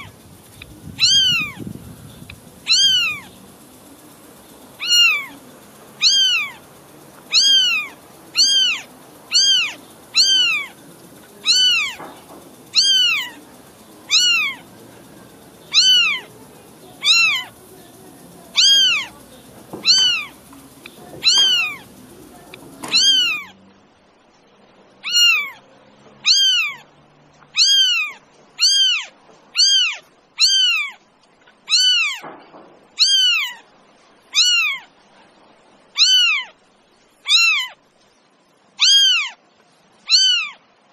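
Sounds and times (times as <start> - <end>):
faint background hiss: 0.0 - 40.9
cat meowing: 1.0 - 1.6, 2.6 - 3.3, 4.8 - 5.3, 6.0 - 6.6, 7.3 - 10.7, 11.4 - 12.0, 12.7 - 13.4, 14.1 - 14.6, 15.7 - 16.3, 17.0 - 17.5, 18.6 - 19.1, 19.8 - 20.3, 21.2 - 21.8, 22.9 - 23.6, 25.0 - 25.6, 26.2 - 26.9, 27.5 - 31.0, 31.6 - 32.2, 33.0 - 33.6, 34.3 - 34.9, 35.9 - 36.6, 37.2 - 37.8, 38.8 - 39.4, 40.0 - 40.6.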